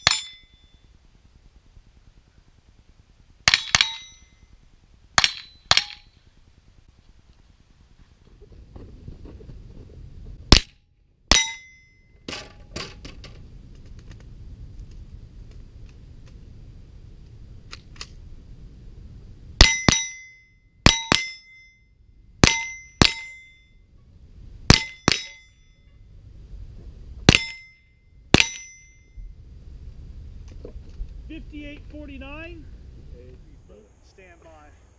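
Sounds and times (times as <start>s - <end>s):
steel plate ringing: 0.0s - 0.9s, 3.5s - 4.5s, 5.2s - 6.2s, 11.3s - 12.6s, 19.6s - 23.9s, 24.7s - 26.0s, 27.3s - 29.2s
rifle shots: 3.4s - 4.2s.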